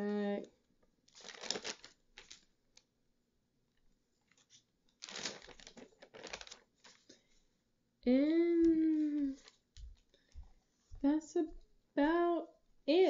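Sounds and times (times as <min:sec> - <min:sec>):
notebook pages rustling: 0:01.1 - 0:02.5, 0:04.2 - 0:07.4.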